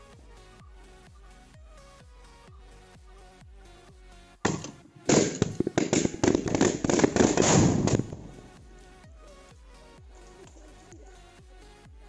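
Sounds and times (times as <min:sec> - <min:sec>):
electronic background music: 0:00.0 - 0:12.0
firecracker hissing burst: 0:04.5 - 0:08.6
firecrackers banging and crackling: 0:04.5 - 0:08.6.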